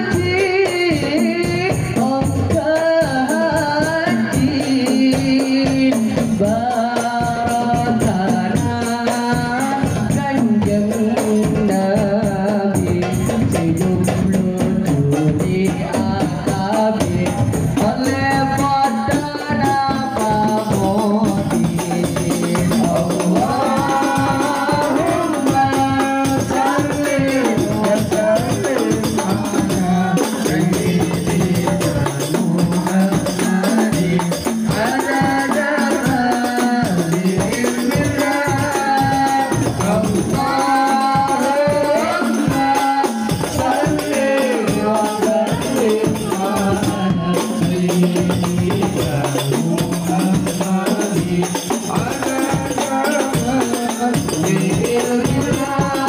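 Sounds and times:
frame drums: 0.0 - 56.0
person singing through a microphone: 0.0 - 56.0
tambourine jingles: 17.5 - 56.0.

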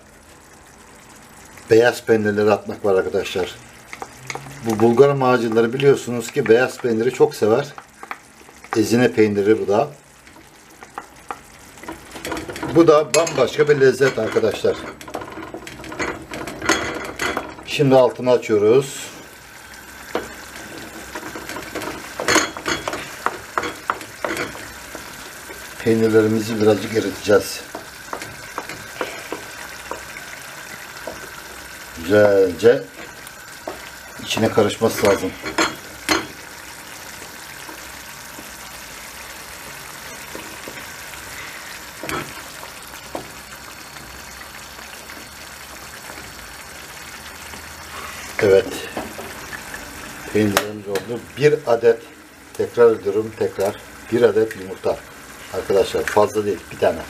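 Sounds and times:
sauce sizzling: 0.0 - 57.0
spoon scraping a frying pan: 3.8 - 9.0, 10.2 - 17.7, 19.1 - 44.9
spoon knocking against pan: 21.1 - 25.7, 27.7 - 31.4.

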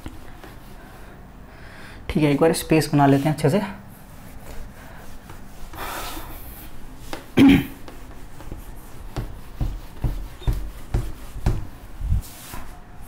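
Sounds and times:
duster rubbing on whiteboard: 3.0 - 12.8.

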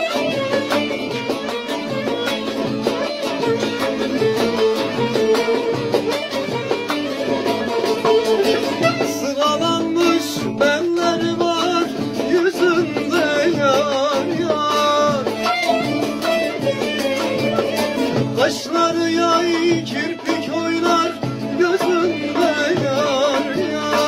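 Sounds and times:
long-necked lute folk melody: 0.0 - 24.0.

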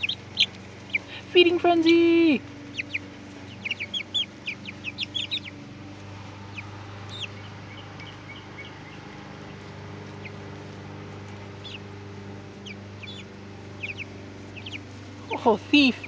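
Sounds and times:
chicks peeping: 0.0 - 16.0
steady low hum: 0.0 - 16.0.

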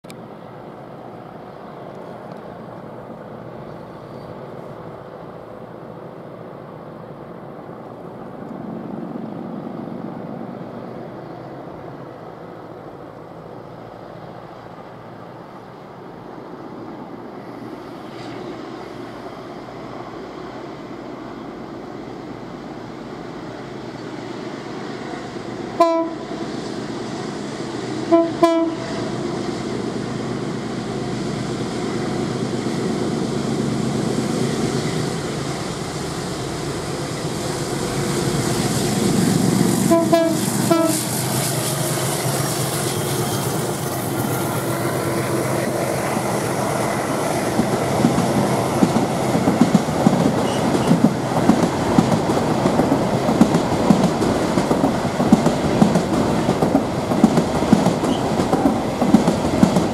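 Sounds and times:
freight train rumble: 0.0 - 59.9
train horn blasts: 25.8 - 26.3, 28.0 - 29.1, 39.8 - 41.2, 50.4 - 50.9.

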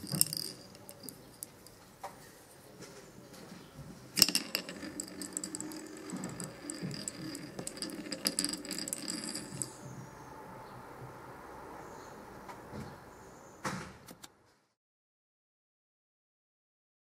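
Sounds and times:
wooden balls clicking and rattling: 0.0 - 1.8, 4.1 - 9.9
wooden top spinning whirr: 0.0 - 1.8, 4.1 - 10.0.

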